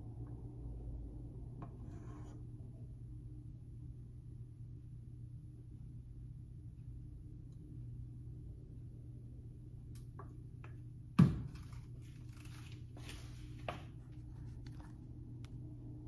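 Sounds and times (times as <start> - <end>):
pot scraping and handling: 1.6 - 2.7.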